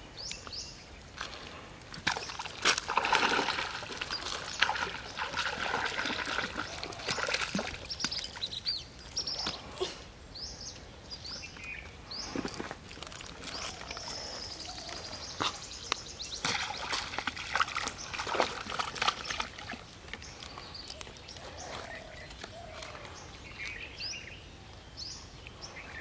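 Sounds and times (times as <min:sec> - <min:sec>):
small birds chirping: 0:00.0 - 0:02.5, 0:03.1 - 0:26.0
fish splashing in water: 0:02.0 - 0:08.5, 0:16.4 - 0:20.2.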